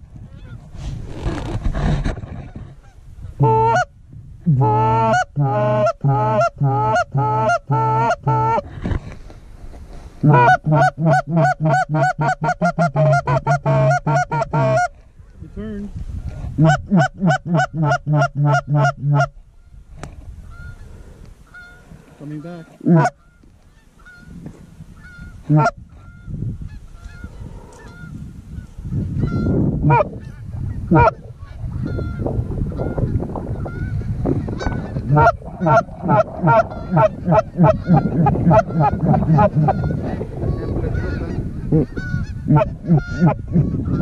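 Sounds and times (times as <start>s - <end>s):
goose honking: 2.8s - 3.9s, 4.5s - 8.6s, 10.2s - 14.9s, 21.4s - 24.4s, 25.0s - 44.0s.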